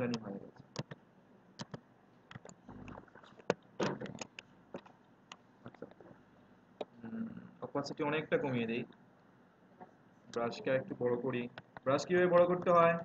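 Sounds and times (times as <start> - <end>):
computer mouse clicks: 0.1 - 1.0, 1.6 - 5.9.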